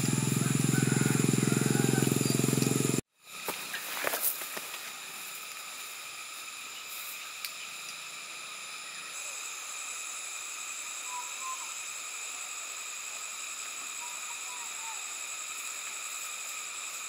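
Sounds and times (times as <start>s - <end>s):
insect chorus drone: 0.0s - 17.0s
faint chirps: 6.5s - 17.0s.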